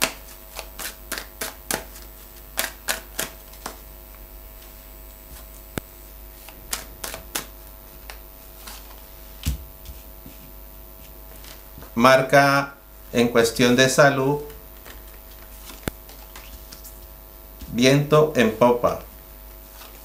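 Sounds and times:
cards being shuffled: 0.0 - 3.8, 6.4 - 11.9, 14.4 - 17.8, 18.9 - 20.0
low mains hum: 0.0 - 20.0.

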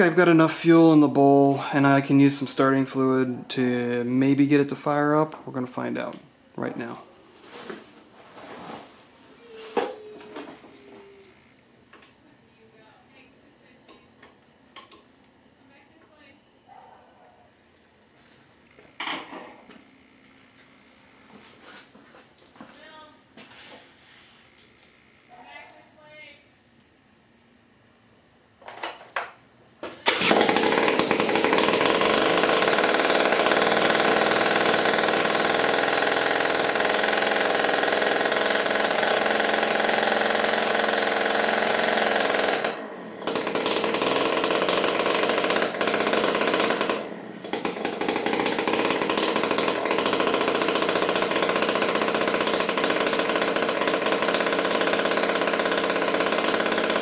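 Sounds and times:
two-stroke engine idling: 0.0 - 4.9, 30.0 - 57.0.

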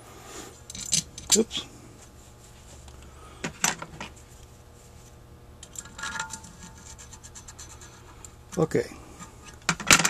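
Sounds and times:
small metal parts clicking: 0.7 - 1.4.

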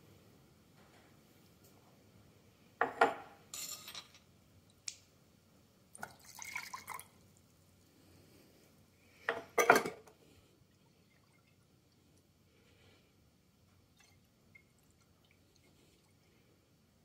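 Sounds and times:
water gurgling into a glass jar: 6.0 - 7.2.

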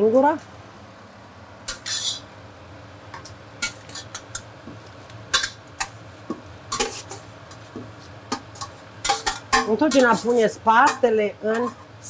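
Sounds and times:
spoon clinking and scraping pan: 1.7 - 2.2, 6.7 - 7.6, 8.3 - 11.9.

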